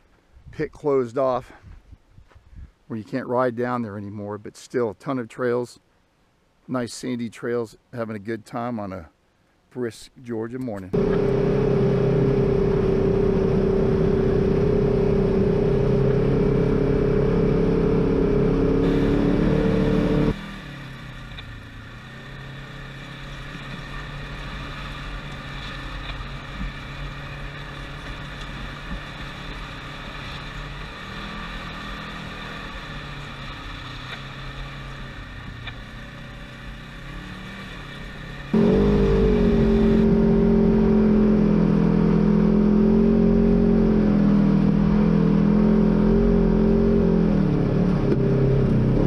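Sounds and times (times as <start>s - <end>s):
off-road vehicle engine running: 10.9s - 49.0s.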